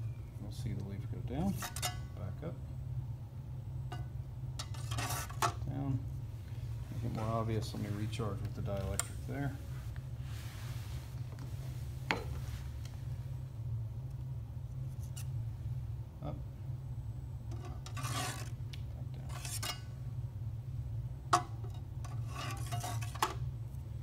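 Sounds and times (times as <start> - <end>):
steady low hum: 0.0 - 24.0
scraping or rubbing noises: 4.6 - 5.6, 9.6 - 12.8, 17.5 - 18.6, 19.2 - 19.9, 22.0 - 23.4.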